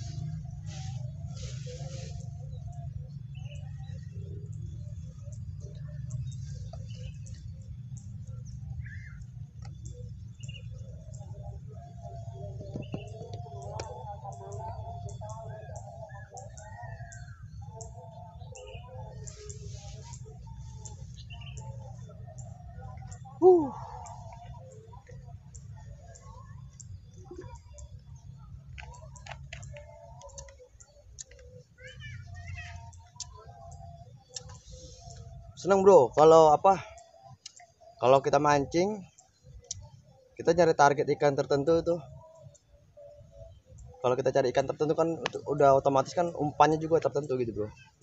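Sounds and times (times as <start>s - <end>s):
wavering tone: 0.0s - 31.8s
bird chirps: 0.0s - 48.0s.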